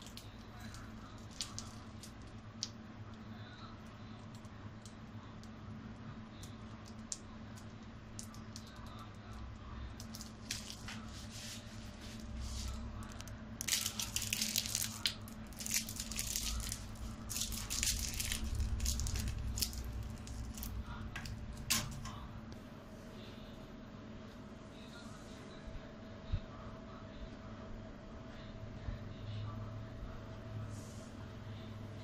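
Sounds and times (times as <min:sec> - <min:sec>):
wrapper rustling and crackling: 0:00.0 - 0:02.7, 0:10.0 - 0:22.1
steady low hum: 0:00.0 - 0:32.0.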